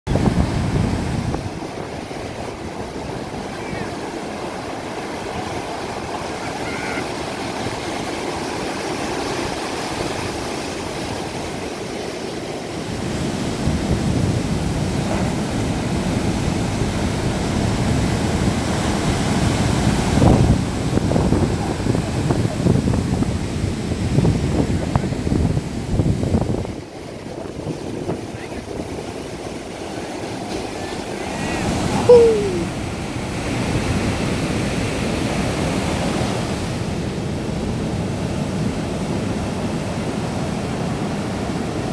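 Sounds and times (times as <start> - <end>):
wind buffeting microphone: 0.1 - 11.9, 12.7 - 30.8
ocean waves breaking: 0.1 - 41.9.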